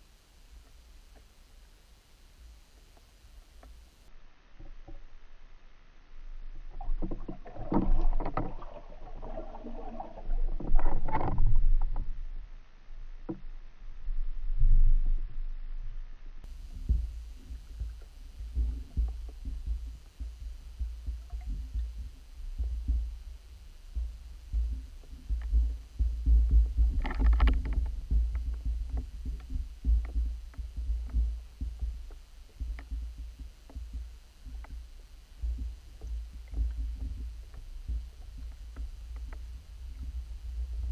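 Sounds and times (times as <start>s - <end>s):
low underwater rumble: 0.0s - 40.9s
churning water underwater: 2.6s - 13.4s, 16.4s - 40.9s
dull thumps: 16.4s - 40.9s.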